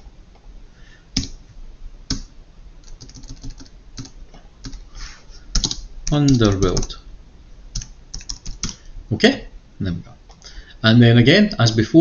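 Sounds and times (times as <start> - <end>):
typing on computer keyboard: 2.1 - 4.8, 5.5 - 7.0, 7.8 - 8.8.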